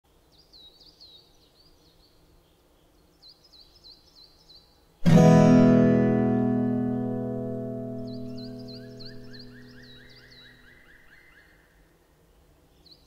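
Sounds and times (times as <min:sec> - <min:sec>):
acoustic guitar chord strummed: 0:05.0 - 0:10.5
faint bird chirps: 0:07.6 - 0:12.0.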